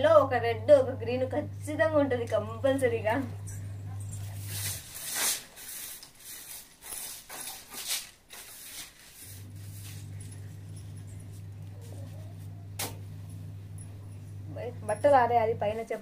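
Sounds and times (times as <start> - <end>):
low hum: 0.0 - 5.0, 9.3 - 15.8
cloth rustling: 4.1 - 12.6.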